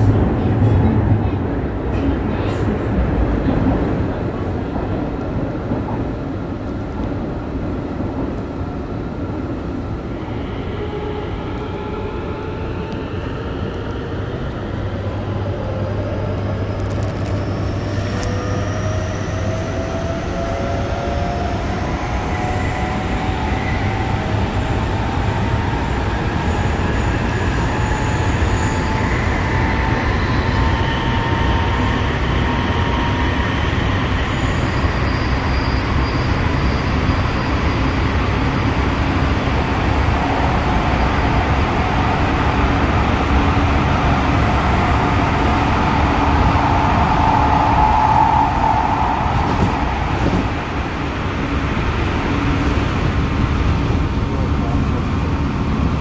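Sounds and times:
wheels rumbling on rails: 0:10.8 - 0:56.0
traction motor whine rising: 0:27.8 - 0:51.7.

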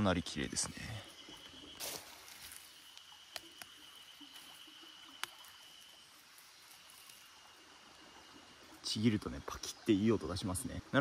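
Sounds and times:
mushroom stems snapping: 0:01.8 - 0:03.8, 0:05.1 - 0:05.6.

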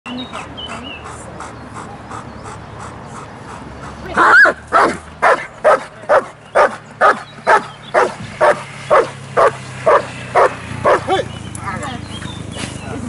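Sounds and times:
dog barking: 0:04.3 - 0:11.2.

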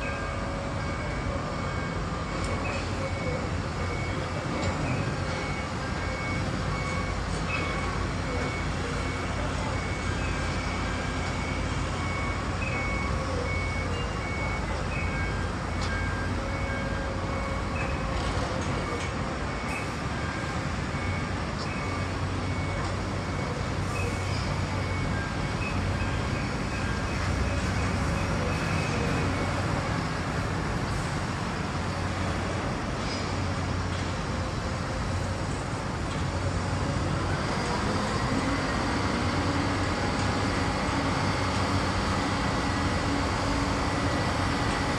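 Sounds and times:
city traffic noise: 0:00.0 - 0:44.9
short electronic beeps: 0:00.1 - 0:18.2.

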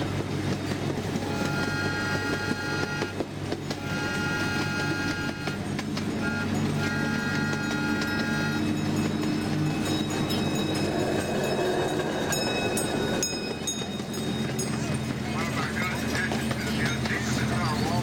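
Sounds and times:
train engine running: 0:00.0 - 0:18.0
train horn blasts: 0:01.1 - 0:09.1.

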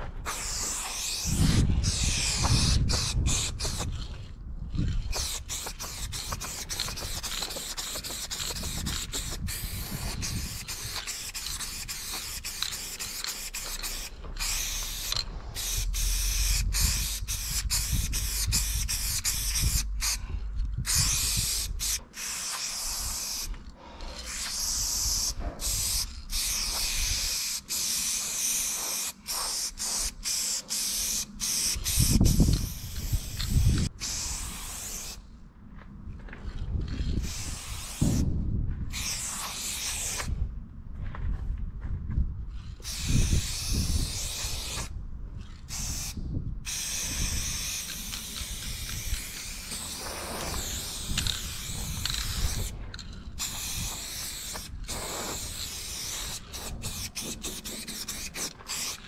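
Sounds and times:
spray paint can hissing: 0:00.2 - 0:35.2, 0:36.9 - 0:38.3, 0:38.9 - 0:40.3, 0:42.8 - 0:59.0.

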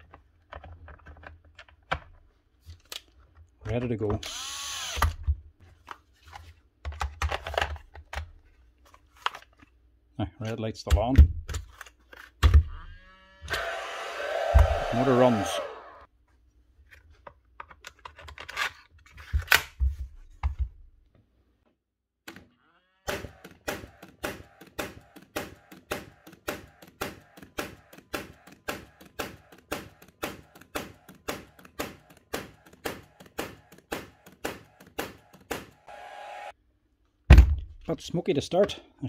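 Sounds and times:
gas nailer firing: 0:23.1 - 0:36.0.

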